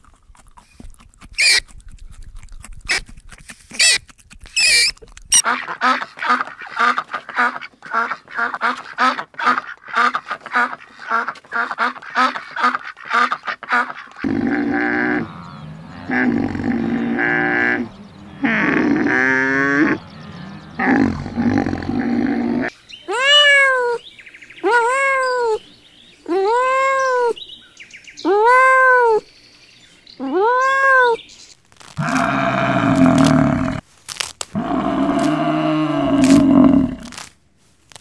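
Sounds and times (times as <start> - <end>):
low drawn-out animal calls: 14.2 - 23.8, 32.0 - 33.8, 34.6 - 37.1.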